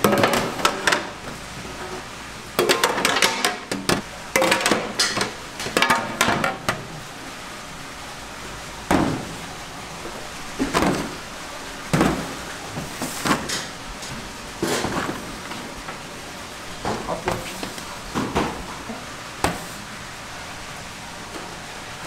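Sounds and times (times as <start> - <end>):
metal pans clattering: 2.6 - 6.8.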